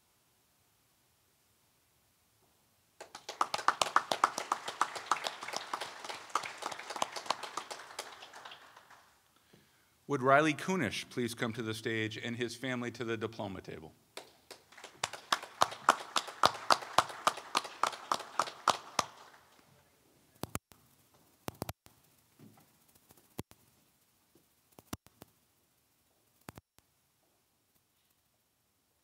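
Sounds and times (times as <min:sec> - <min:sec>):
small group applauding: 0:03.0 - 0:09.2, 0:14.2 - 0:19.6.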